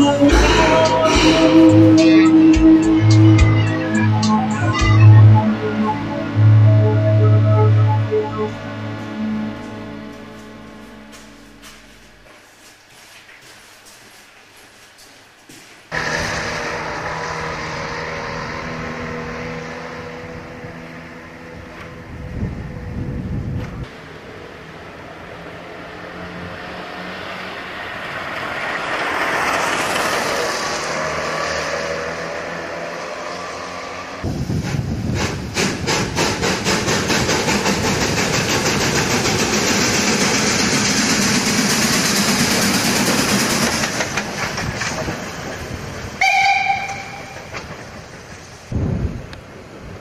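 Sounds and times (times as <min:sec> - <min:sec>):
steam hissing: 0:34.2 - 0:48.8
steam locomotive chuffing: 0:34.3 - 0:48.8
steam whistle blast: 0:46.2 - 0:47.5.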